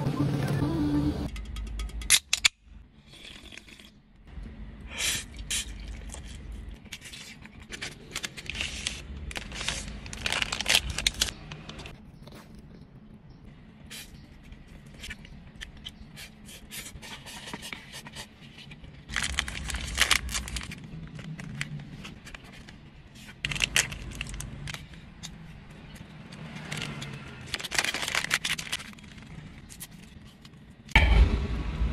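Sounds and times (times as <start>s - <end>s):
plastic wrappers crinkling and tearing: 5.6s - 11.9s, 18.8s - 25.4s, 26.4s - 30.5s.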